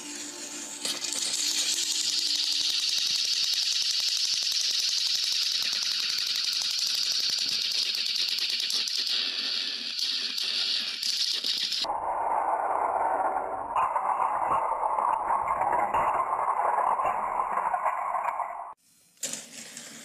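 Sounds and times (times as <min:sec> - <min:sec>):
toy train motor clicking rattle: 0:00.8 - 0:11.9.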